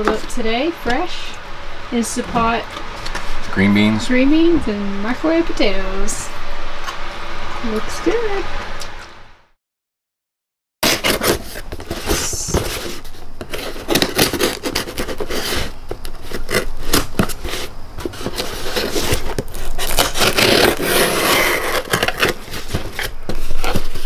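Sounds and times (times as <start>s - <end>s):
cardboard scraping and rubbing: 2.0s - 3.6s, 10.8s - 24.0s
knife slitting packing tape: 10.8s - 12.5s, 13.5s - 24.0s.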